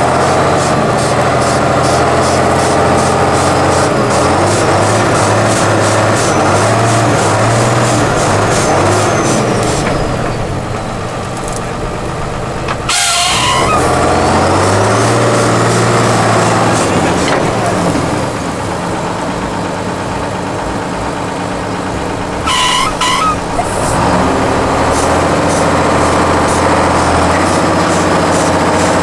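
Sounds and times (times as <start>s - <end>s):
diesel truck engine under load: 0.0s - 29.0s
loud bursts of hiss: 22.5s - 29.0s.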